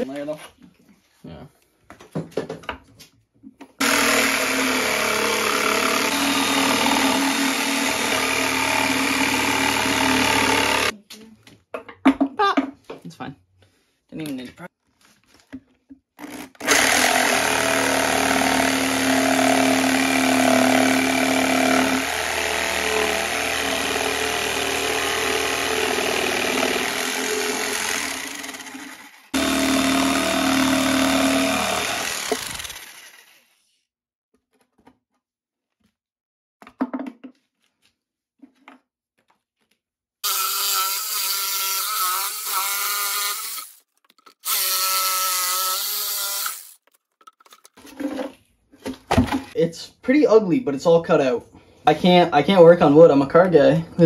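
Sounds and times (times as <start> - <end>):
power saw cutting plywood: 3.8 - 10.9, 16.2 - 33.6, 40.2 - 46.9
high-pitched power tool whine: 29.3 - 33.1.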